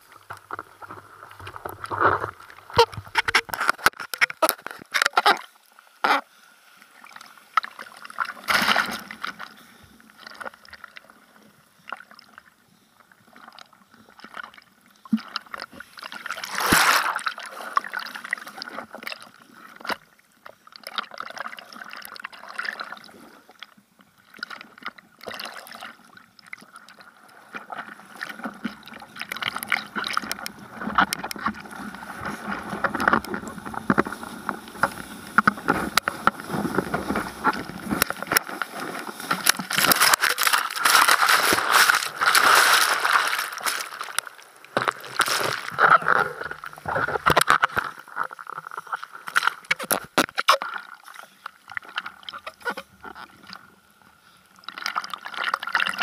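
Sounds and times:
seawater splashing: 14.5 - 19.8, 24.3 - 53.6.

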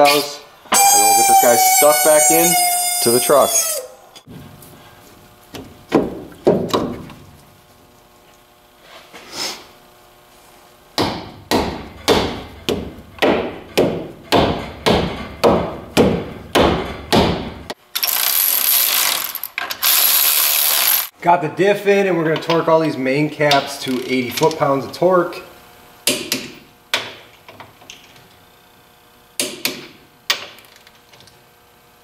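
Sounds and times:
power tool whirring: 17.9 - 21.1.

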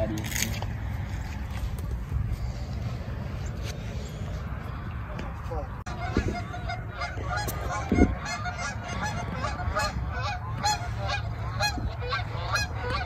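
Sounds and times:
geese honking: 5.6 - 13.0.

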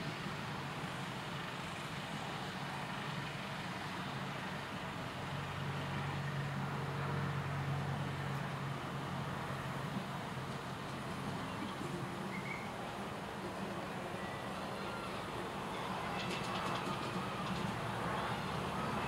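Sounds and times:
miniature locomotive motor humming: 13.6 - 19.0.

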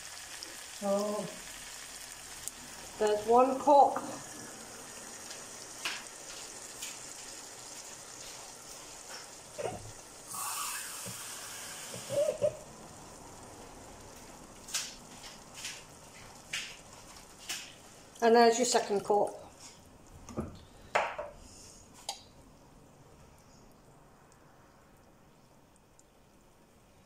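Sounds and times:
food sizzling in a pan: 0.0 - 20.0.

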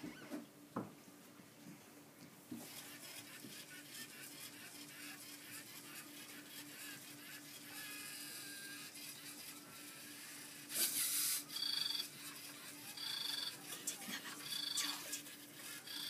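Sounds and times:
robot motors humming: 2.6 - 16.0
high buzzing two-tone chirp: 7.8 - 13.6, 14.4 - 16.0.

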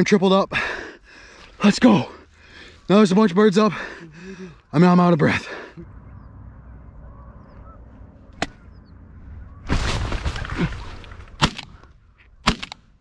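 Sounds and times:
shotgun shots: 11.3 - 11.8, 12.4 - 12.9.

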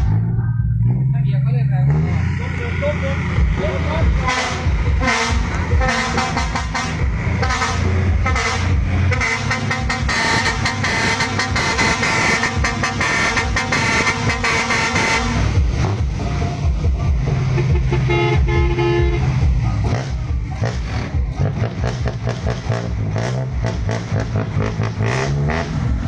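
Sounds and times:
truck horns honking: 0.0 - 16.6, 17.2 - 26.0
truck engines running: 0.0 - 26.0.

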